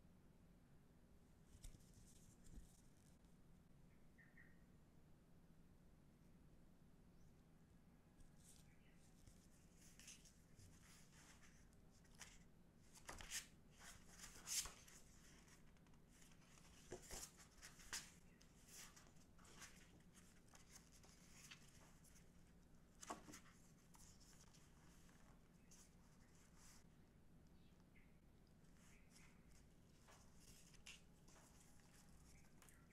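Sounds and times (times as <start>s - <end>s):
glossy pages rustling: 8.4s - 26.8s, 28.7s - 32.9s.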